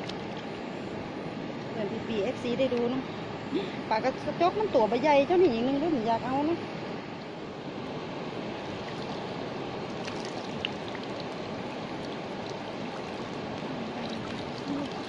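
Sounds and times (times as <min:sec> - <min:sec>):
water trickling off a net: 0:08.8 - 0:15.0.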